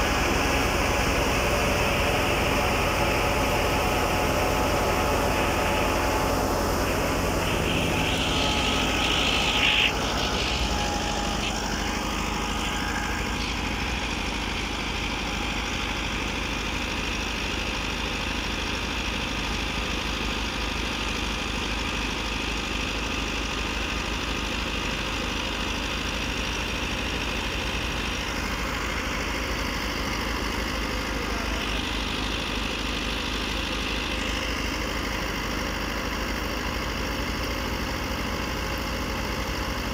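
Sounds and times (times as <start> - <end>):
thresher hum: 0.0 - 18.2
tractor diesel engine running: 0.0 - 39.9.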